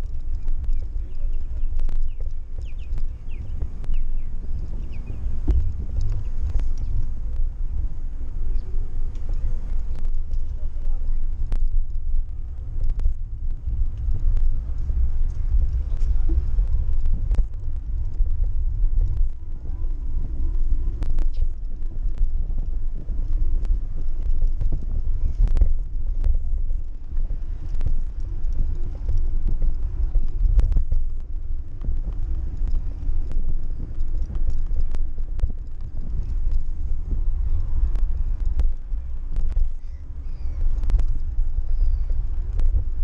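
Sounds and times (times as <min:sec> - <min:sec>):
bike and basket rattling: 0:00.0 - 0:43.0
wind buffeting microphone: 0:00.0 - 0:43.0.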